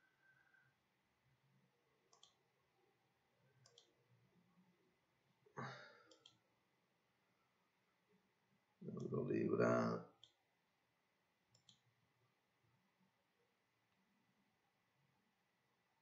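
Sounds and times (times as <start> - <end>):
computer mouse clicks: 2.1 - 2.4, 3.6 - 3.9, 6.0 - 6.4, 11.5 - 11.8.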